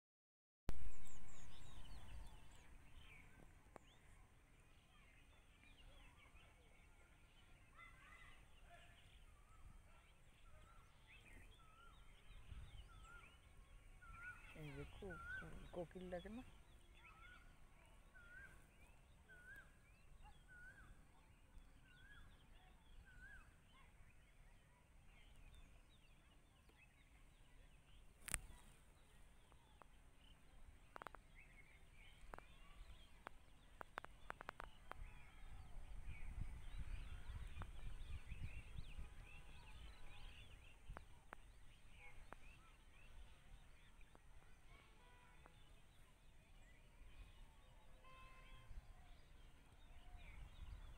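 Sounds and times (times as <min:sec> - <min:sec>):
small bird chirps: 0:24.6 - 0:47.4.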